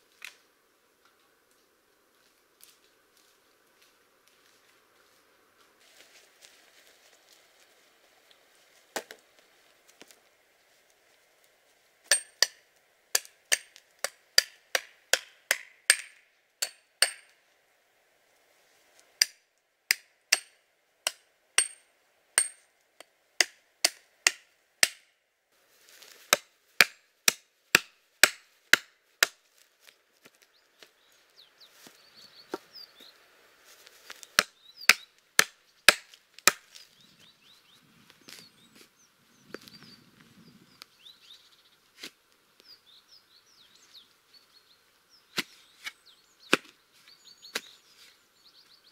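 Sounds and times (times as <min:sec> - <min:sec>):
hatchet chopping wood: 0:12.1 - 0:17.4, 0:19.2 - 0:21.8, 0:22.4 - 0:25.1, 0:26.2 - 0:29.4, 0:34.3 - 0:36.7.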